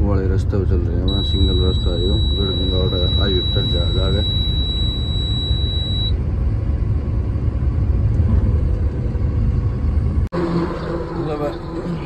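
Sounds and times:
truck engine and tyre rumble: 4.2s - 12.0s.

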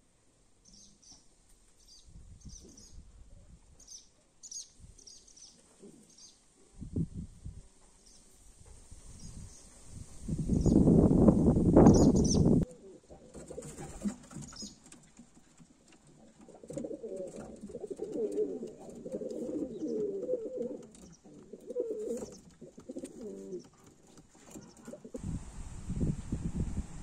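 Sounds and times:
pigeons cooing: 11.8s - 14.8s, 16.0s - 25.2s.

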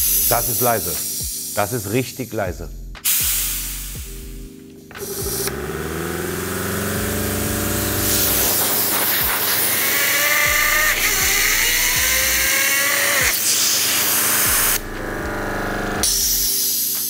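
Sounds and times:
air hissing from hose: 0.0s - 1.6s, 3.0s - 4.4s, 5.0s - 5.6s, 7.2s - 14.8s, 16.0s - 17.0s
compressor motor whine: 4.9s - 16.5s.

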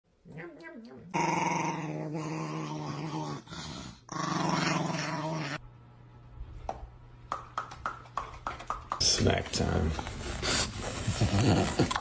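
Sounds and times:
small dog growling while eating: 0.2s - 5.6s, 11.1s - 12.0s.

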